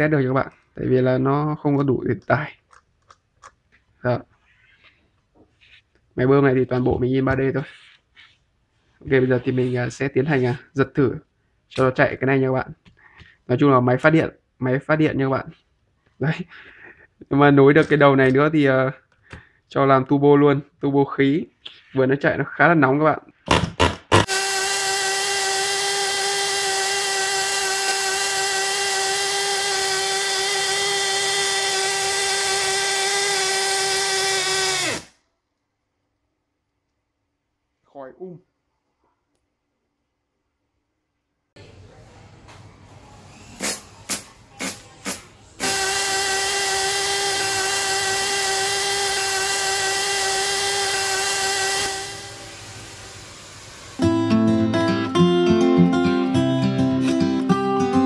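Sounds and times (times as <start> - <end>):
model engine high-pitched buzz: 24.1 - 35.1, 45.6 - 54.0.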